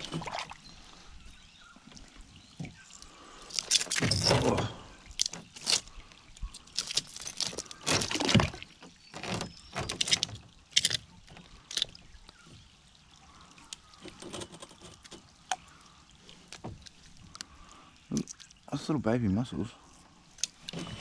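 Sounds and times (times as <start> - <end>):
rocks knocking and splashing: 0.0 - 0.6, 3.5 - 12.5
water trickling: 0.0 - 21.0.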